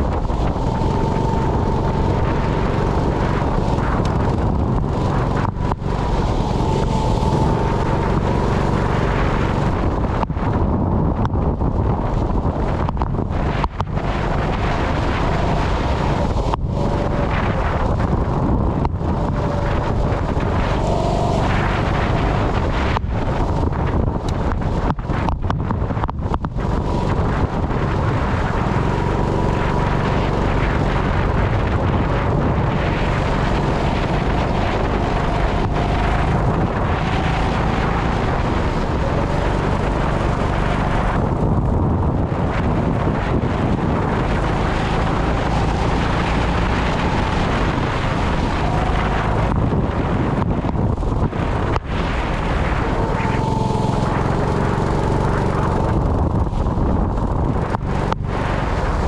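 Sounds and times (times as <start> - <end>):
go-kart engine revving: 0.0 - 10.8, 11.5 - 59.0
wind buffeting microphone: 0.0 - 59.0.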